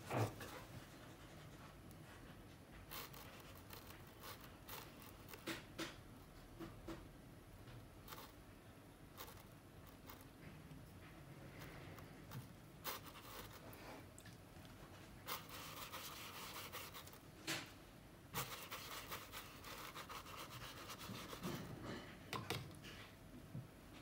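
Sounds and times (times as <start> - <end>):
paintbrush scratching on paper: 2.9 - 5.6, 11.6 - 13.7, 15.2 - 17.2, 18.3 - 21.7.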